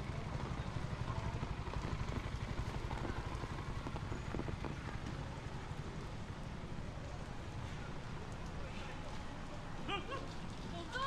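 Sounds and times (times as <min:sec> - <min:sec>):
street noise: 0:00.0 - 0:11.0
vehicle engine rumble: 0:00.0 - 0:11.0.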